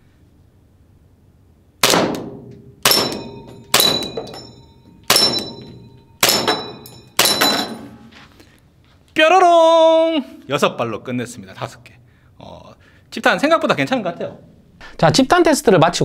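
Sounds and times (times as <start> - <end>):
airsoft pistol shots: 1.8 - 4.3, 5.1 - 5.6, 6.2 - 7.7
metal target clanging: 1.8 - 8.1.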